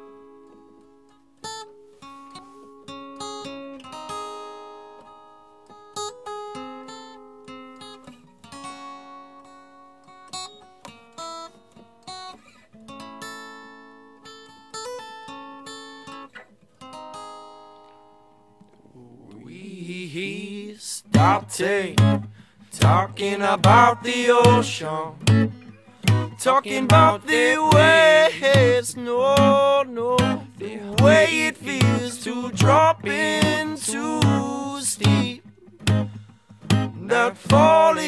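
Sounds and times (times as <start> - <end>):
acoustic guitar strumming chords: 21.1 - 38.0.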